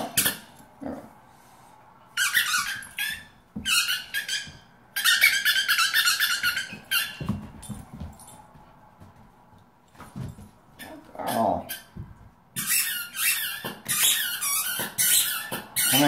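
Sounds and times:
rubber squeaky toy squeaking: 2.2s - 7.4s, 12.6s - 16.0s.

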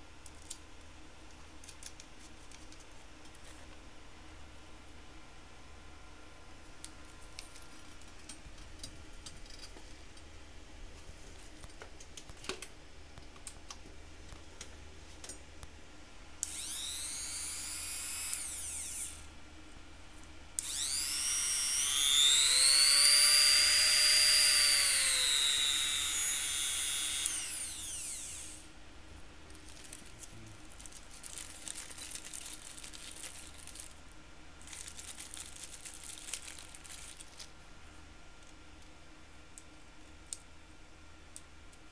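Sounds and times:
rotary tool motor whining: 16.4s - 19.3s, 20.6s - 28.6s
plastic rustling: 29.5s - 34.0s, 34.6s - 37.5s.

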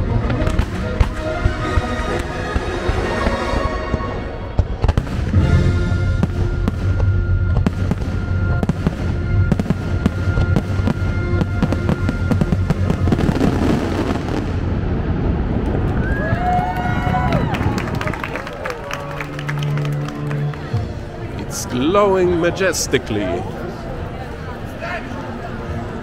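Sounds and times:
music soundtrack: 0.0s - 15.1s, 18.5s - 26.0s
fireworks cracking and banging: 0.2s - 18.4s
low rumble: 4.0s - 18.1s.

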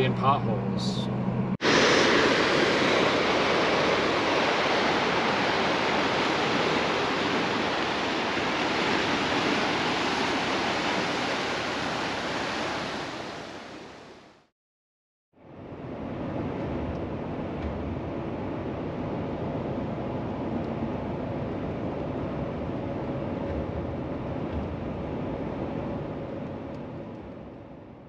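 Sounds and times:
waves breaking over rocks: 1.6s - 14.2s.

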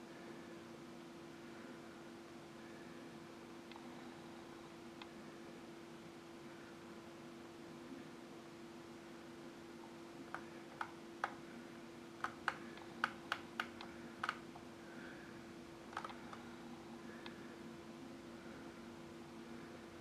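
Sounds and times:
faint low hum: 0.0s - 20.0s
computer keys clicking: 10.3s - 11.4s, 12.2s - 14.5s, 15.9s - 16.4s.

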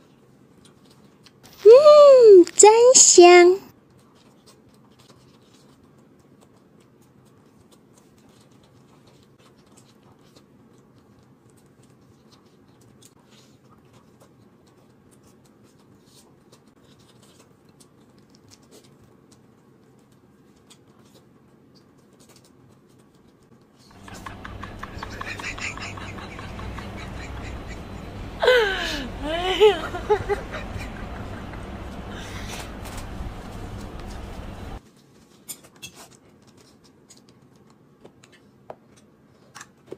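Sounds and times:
small clicks and rustles: 0.0s - 1.6s, 3.7s - 24.6s, 32.5s - 39.9s
soft chewing: 0.1s - 1.4s, 3.9s - 28.4s, 29.1s - 35.3s
low steady hum: 24.0s - 34.8s.

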